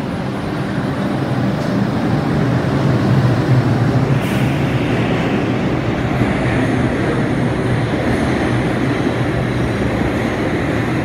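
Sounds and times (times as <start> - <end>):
subway train equipment humming: 0.0 - 11.0
brief air hiss: 4.1 - 4.7.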